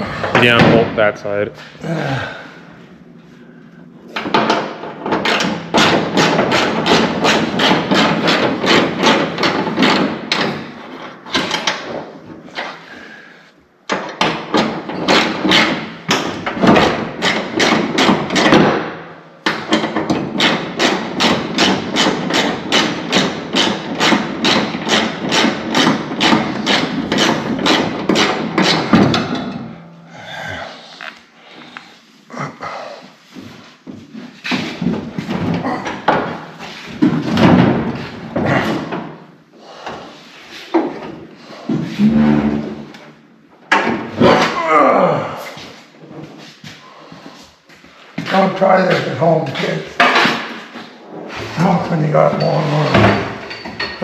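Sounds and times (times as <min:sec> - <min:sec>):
rapid hammering: 0:04.2 - 0:12.0, 0:13.9 - 0:29.8.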